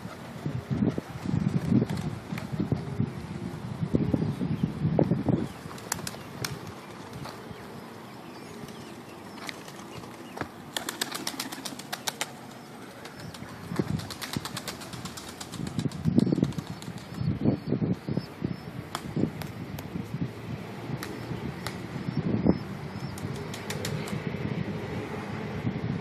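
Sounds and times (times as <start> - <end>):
pigeon wings flapping: 5.7 - 7.4, 9.4 - 17.2, 23.2 - 24.2.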